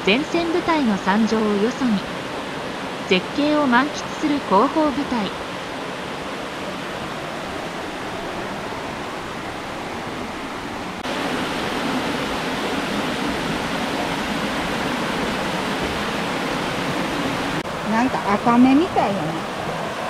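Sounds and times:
stream water rushing over rocks: 0.1 - 20.0.

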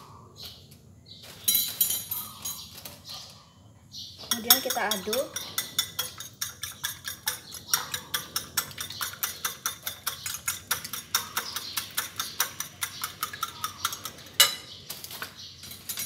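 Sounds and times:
whisk beating eggs in a bowl: 4.3 - 14.3
whisk clinking on bowl: 4.3 - 14.6.

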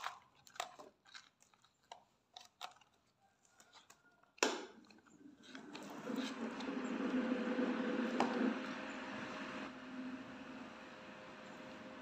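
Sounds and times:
plastic packet crinkling: 0.0 - 5.1.

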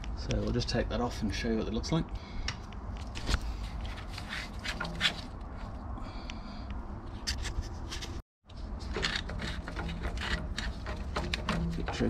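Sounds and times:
metal clicks and scrapes: 3.0 - 5.7, 7.2 - 12.0.

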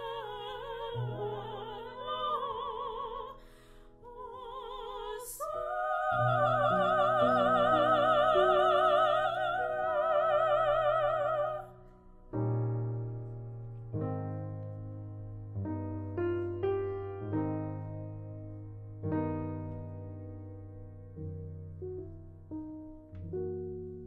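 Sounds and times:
piano accompaniment: 0.0 - 24.0
operatic voice singing: 4.0 - 11.7.

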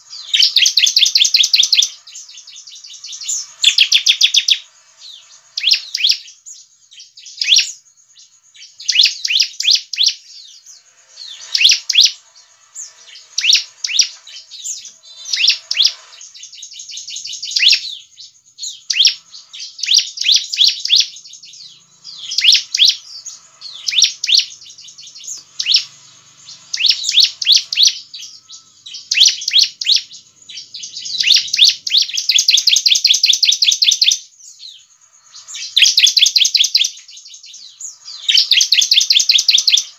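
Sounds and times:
bird trill: 0.0 - 39.9
bird singing high falling notes: 8.7 - 39.9.

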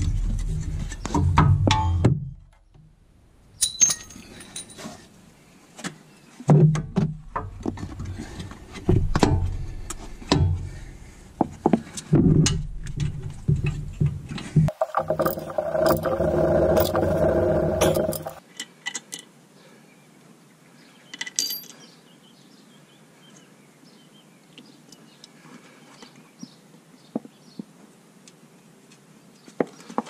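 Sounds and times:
spanner rattling on bolt: 14.7 - 18.4.

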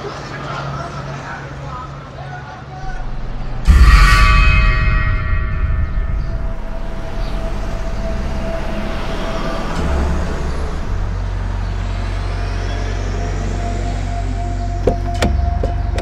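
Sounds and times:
heavy vehicle engine running: 5.2 - 16.0.

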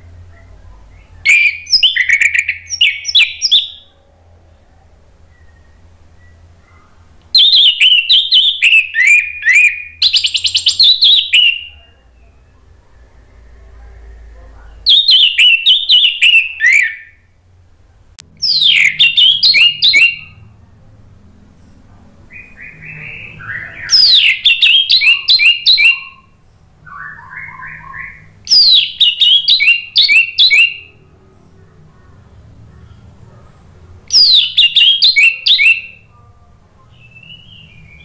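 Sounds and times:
thrush singing whistled notes: 0.9 - 3.9, 7.4 - 12.6, 14.9 - 17.3, 18.4 - 20.5, 22.3 - 31.1, 34.1 - 36.3, 36.9 - 38.0
soft warbled bird notes: 21.6 - 31.1.

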